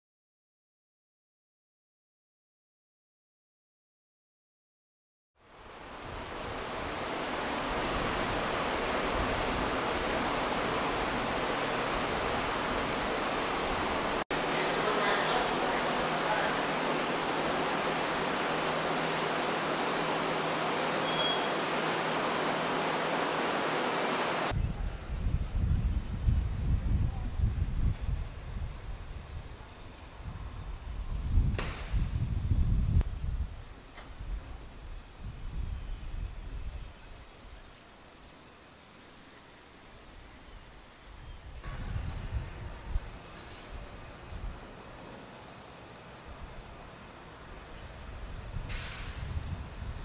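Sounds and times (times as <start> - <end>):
wind gusts on microphone: 5.8 - 14.2, 24.4 - 37.2, 41.4 - 44.8, 47.9 - 50.0
insects chirping: 27.6 - 50.0
brief knock: 31.6 - 32.0.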